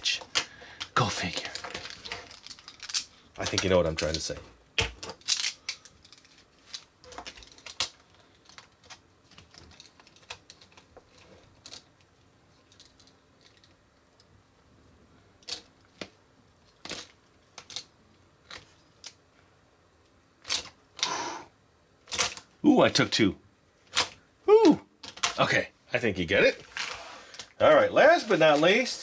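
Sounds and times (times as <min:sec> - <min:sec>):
plastic game pieces clicking: 0:00.2 - 0:11.9.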